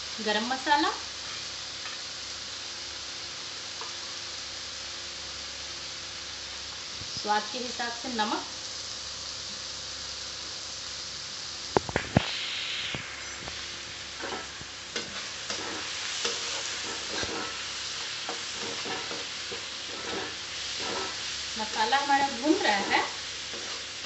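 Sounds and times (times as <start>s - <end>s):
masala sizzling in hot oil: 0.0s - 24.0s
spatula scraping a pan: 14.1s - 24.0s.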